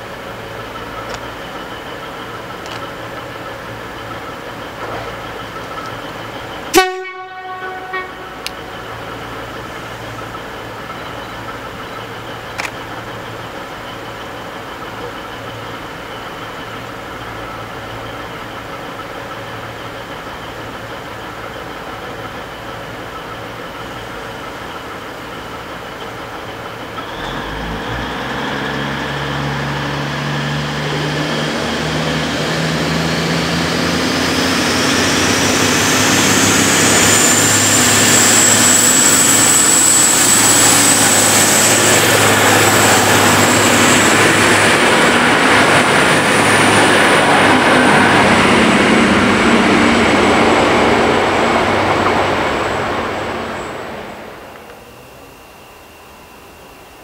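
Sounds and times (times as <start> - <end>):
diesel train engines revving: 0.0 - 55.4
high whine climbing in pitch: 23.1 - 57.0.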